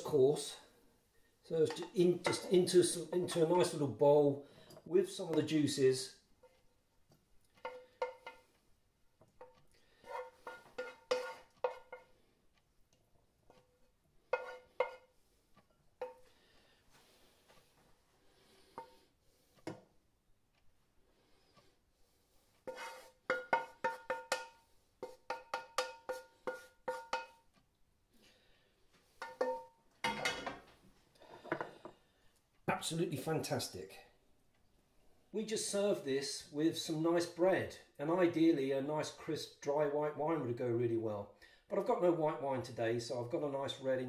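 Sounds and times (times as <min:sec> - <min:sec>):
spatula scraping pan: 0:01.6 - 0:03.9, 0:07.5 - 0:08.6, 0:09.3 - 0:12.4, 0:13.4 - 0:16.4, 0:21.5 - 0:27.5, 0:29.0 - 0:30.6
wooden spoon knocking in pan: 0:07.6 - 0:08.5, 0:22.7 - 0:27.4, 0:29.2 - 0:30.2.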